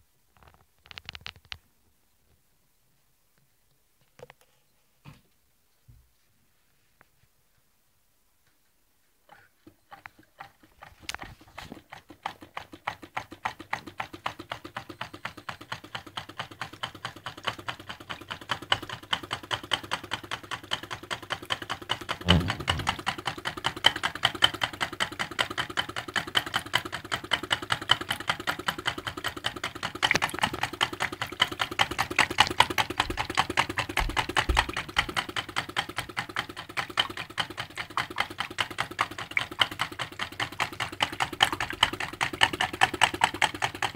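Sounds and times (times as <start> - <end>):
small engine clicking clatter: 9.6 - 43.9
heavy knock: 22.3 - 23.1.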